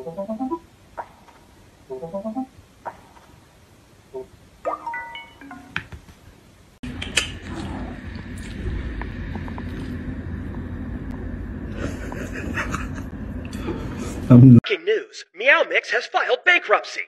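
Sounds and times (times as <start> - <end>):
game musical tones: 0.0 - 0.6, 1.9 - 2.5, 4.2 - 5.8
low background hum: 0.0 - 14.6.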